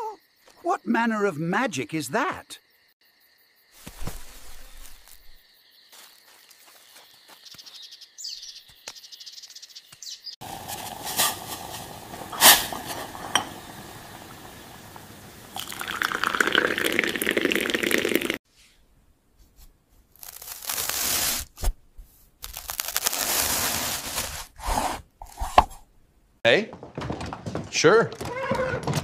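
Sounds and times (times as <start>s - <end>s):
tea bubbling in saucepan: 10.4s - 18.4s
tea pouring into cup: 10.4s - 18.4s
knife cutting on wooden board: 24.6s - 25.8s.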